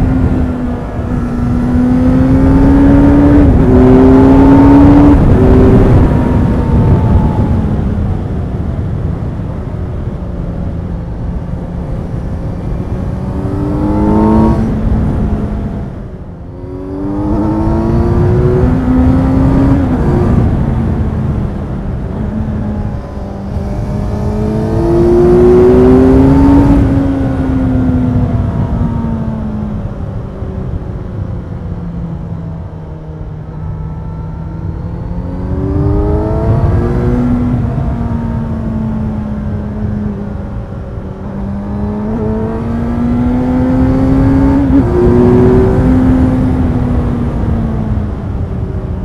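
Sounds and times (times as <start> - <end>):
motorcycle engine revving: 0.0 - 7.8, 12.1 - 21.5, 22.2 - 29.2, 33.6 - 48.0
wind rush: 0.0 - 49.0.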